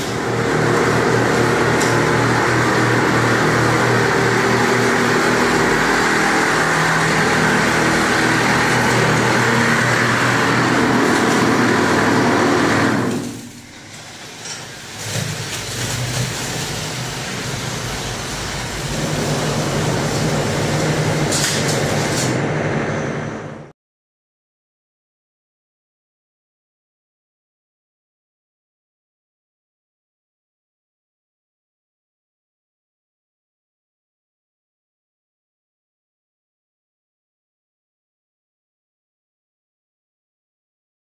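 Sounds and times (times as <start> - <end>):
plastering machine humming: 0.0 - 23.6.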